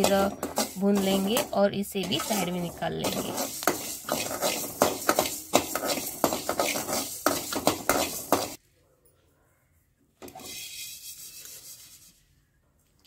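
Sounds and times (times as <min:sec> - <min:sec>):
spatula scraping seeds in pan: 0:00.0 - 0:08.6, 0:10.3 - 0:12.2.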